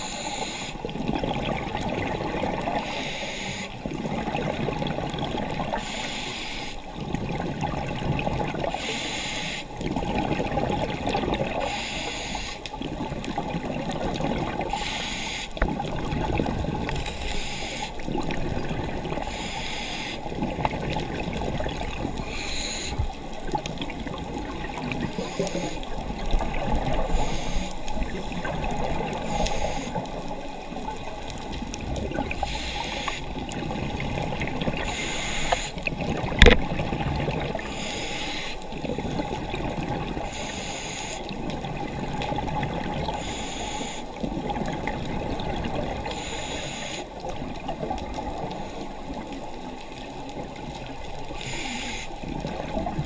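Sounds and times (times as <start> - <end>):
exhaled air bubbling: 0.0 - 53.0
regulator hiss: 2.8 - 3.8, 5.8 - 6.8, 8.8 - 9.7, 11.7 - 12.6, 14.8 - 15.6, 17.0 - 18.0, 19.2 - 20.2, 22.2 - 23.1, 25.1 - 26.0, 27.0 - 28.1, 29.2 - 30.1, 32.4 - 33.4, 34.8 - 35.8, 37.6 - 38.6, 40.2 - 41.3, 43.2 - 44.2, 46.1 - 47.1, 51.3 - 52.2.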